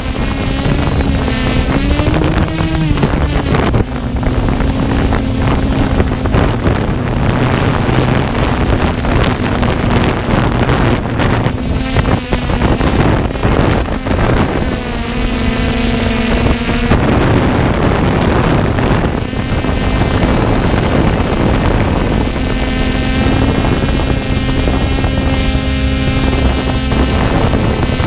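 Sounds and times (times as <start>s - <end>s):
drone propellers whirring: 0.0s - 28.0s
wind buffeting microphone: 0.0s - 28.0s.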